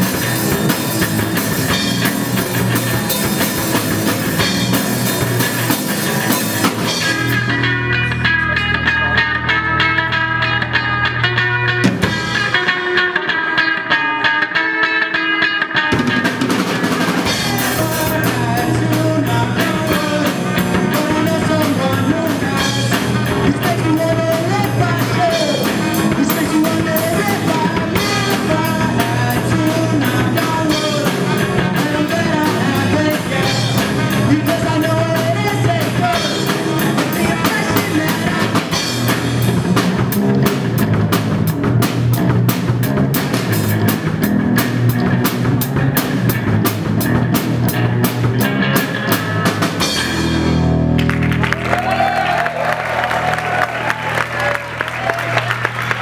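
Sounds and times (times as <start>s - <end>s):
electric guitar: 0.0s - 56.0s
rock band playing: 0.0s - 56.0s
man singing: 17.1s - 39.3s.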